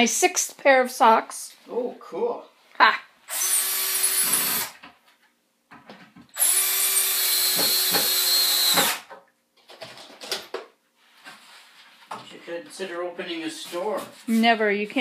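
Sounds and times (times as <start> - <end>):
cordless drill into wood: 3.3 - 4.8, 6.3 - 9.1.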